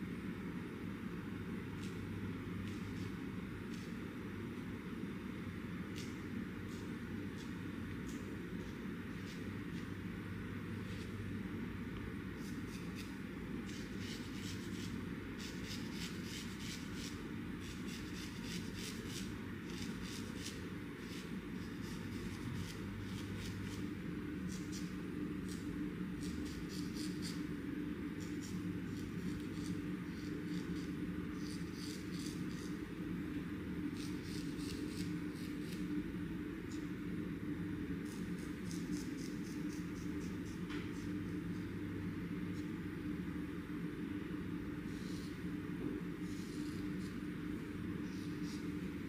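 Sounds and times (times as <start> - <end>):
steady low hum: 0.0 - 49.0
razor scraping skin: 12.4 - 23.9, 24.5 - 27.5, 28.2 - 32.8, 33.9 - 35.9, 38.0 - 41.1, 46.2 - 47.2, 48.1 - 48.8.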